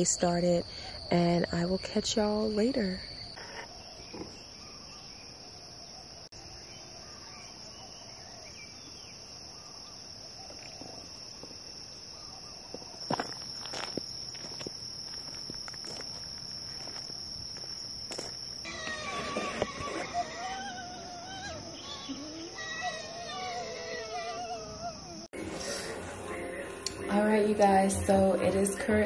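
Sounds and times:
insects trilling: 0.0s - 29.0s.

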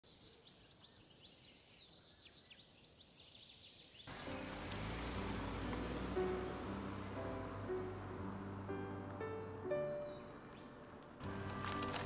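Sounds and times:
faint birds chirping: 0.0s - 11.4s
music: 4.1s - 12.0s.

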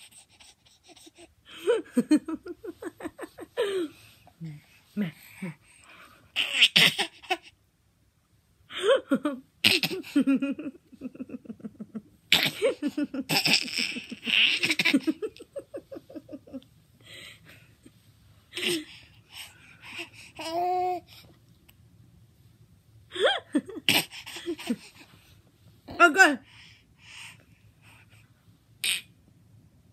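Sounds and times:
woman laughing: 1.5s - 4.0s, 8.8s - 16.6s, 23.1s - 24.9s
baby laughing: 6.4s - 7.5s, 12.3s - 16.3s.

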